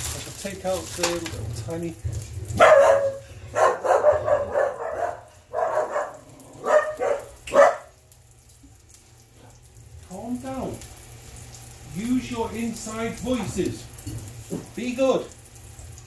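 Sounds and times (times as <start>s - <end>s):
dogs barking: 2.5s - 8.0s.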